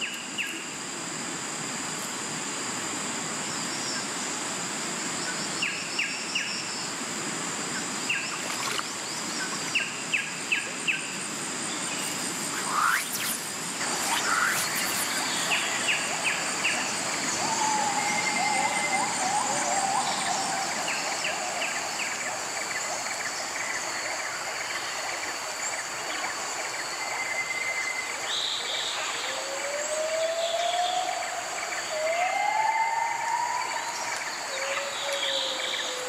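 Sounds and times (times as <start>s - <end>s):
even hiss: 6.7s - 23.8s
high-pitched insect drone: 10.8s - 36.0s
rising calls: 12.0s - 22.2s
whistled bird calls: 12.5s - 21.4s.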